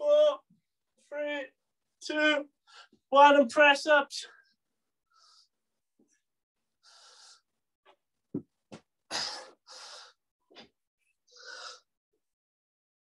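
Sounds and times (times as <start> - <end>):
person breathing heavily: 6.8 - 7.6, 9.1 - 10.3, 11.3 - 11.9.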